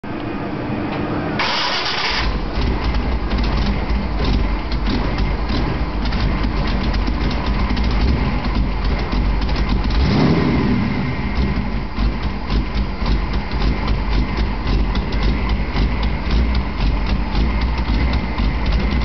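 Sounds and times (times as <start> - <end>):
car engine starting and rumbling: 1.2 - 19.0.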